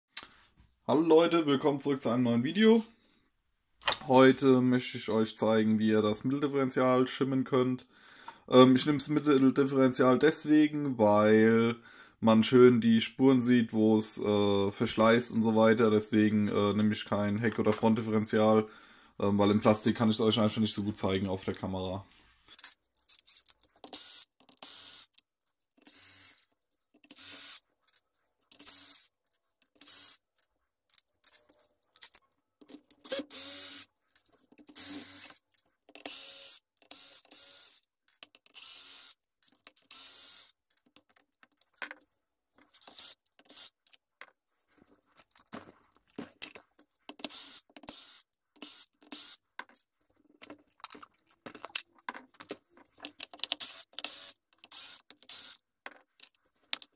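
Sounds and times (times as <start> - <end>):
power screwdriver bursts: 33.0 - 33.9, 34.7 - 35.4, 36.0 - 37.8, 38.5 - 39.2, 39.8 - 40.5, 47.2 - 49.4, 53.5 - 55.6.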